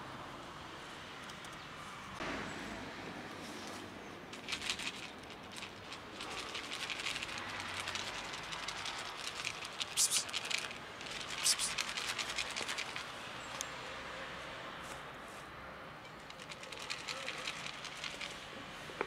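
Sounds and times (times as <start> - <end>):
scratching and rustling: 3.4 - 13.6, 14.8 - 19.0.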